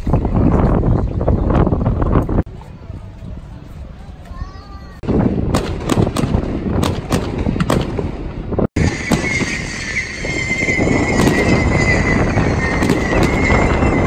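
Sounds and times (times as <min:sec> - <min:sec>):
fireworks bangs: 0:05.0 - 0:14.0
high firework whistle: 0:08.8 - 0:14.0.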